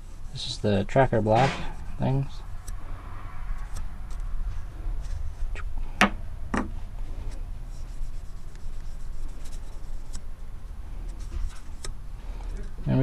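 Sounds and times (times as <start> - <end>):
knocks on wooden workbench: 6.0 - 6.7
cotton ball rubbing plastic: 7.7 - 12.0.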